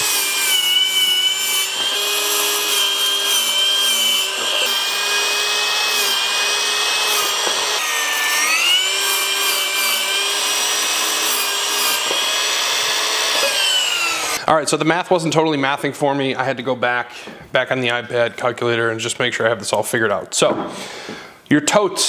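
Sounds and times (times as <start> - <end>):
miter saw cutting wood: 0.0 - 14.4.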